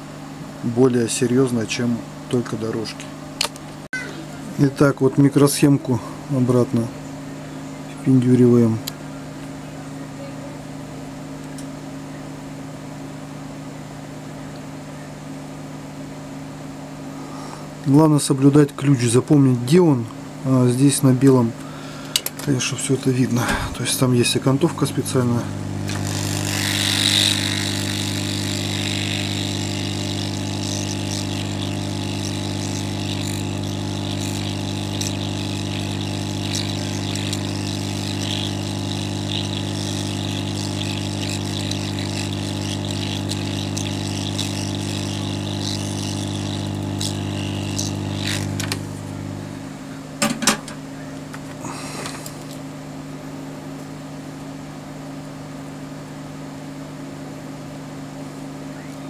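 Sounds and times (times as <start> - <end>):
faint hum: 0.0 - 59.0
hot-air blower hissing: 21.2 - 53.1.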